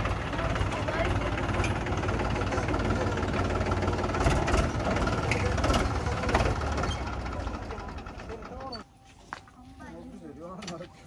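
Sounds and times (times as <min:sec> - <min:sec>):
tractor diesel engine running: 0:00.0 - 0:08.8.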